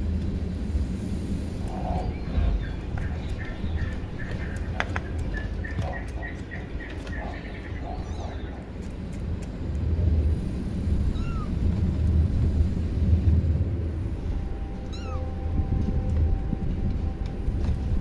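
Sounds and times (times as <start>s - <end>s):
low rumble: 0.0s - 18.0s
kitten mewing: 11.1s - 11.6s, 14.9s - 15.2s.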